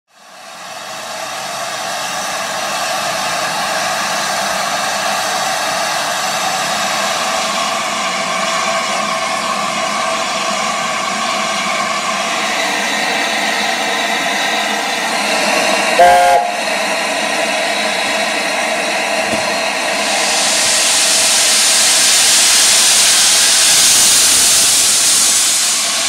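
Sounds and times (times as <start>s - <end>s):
steam hissing from locomotive: 0.1s - 26.0s.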